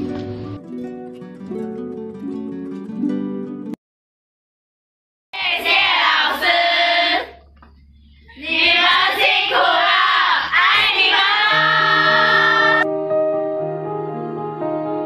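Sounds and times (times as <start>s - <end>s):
girls shouting in unison: 8.4s - 12.8s.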